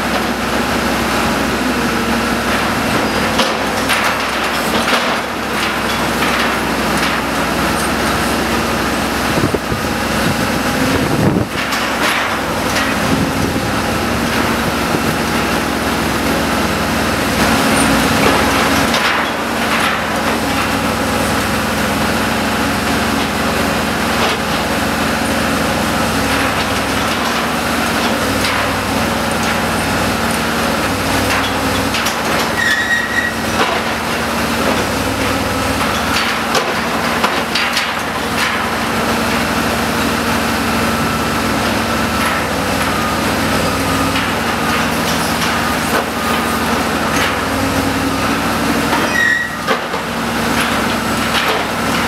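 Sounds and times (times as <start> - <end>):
crane engine droning: 0.0 - 52.0.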